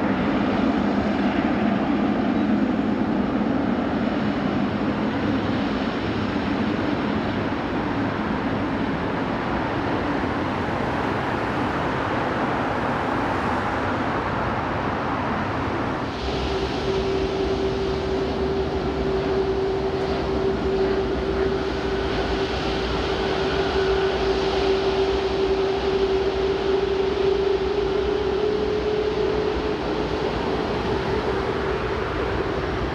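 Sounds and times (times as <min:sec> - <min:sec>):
constant mid-pitched whine: 0:00.0 - 0:32.9
jet engines rushing: 0:00.0 - 0:32.9
steady low rumble: 0:14.1 - 0:32.9.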